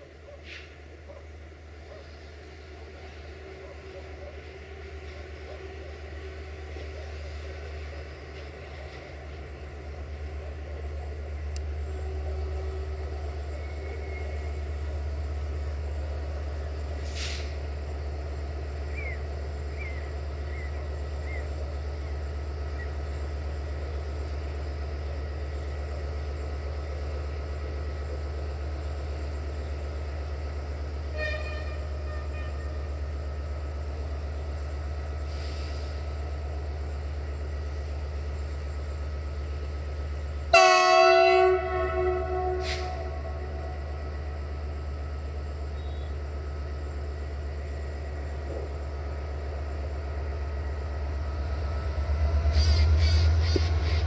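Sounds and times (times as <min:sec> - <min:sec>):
diesel locomotive idling: 0:00.0 - 0:54.0
air hiss: 0:17.0 - 0:17.6, 0:35.2 - 0:36.1
locomotive horn toot: 0:31.0 - 0:33.0, 0:40.5 - 0:44.3.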